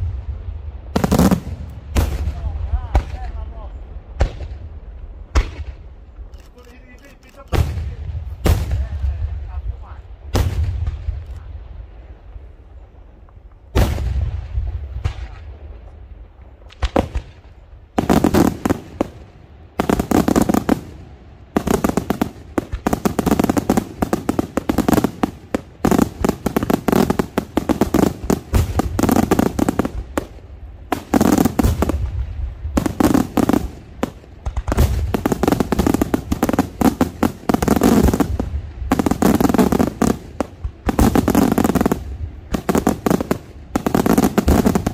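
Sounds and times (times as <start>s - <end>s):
firework bangs and crackling: 0.0s - 44.9s.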